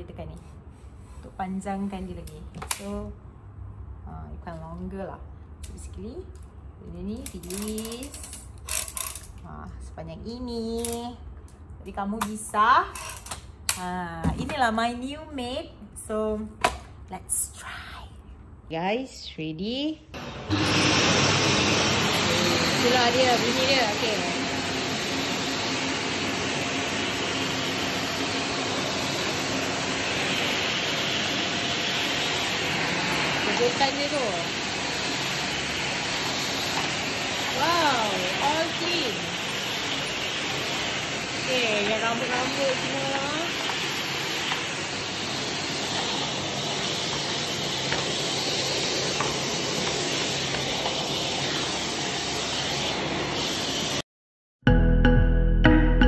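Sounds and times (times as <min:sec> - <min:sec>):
vacuum cleaner running: 0:20.2 - 0:54.0
vacuum nozzle pushed over tiles: 0:20.2 - 0:54.0.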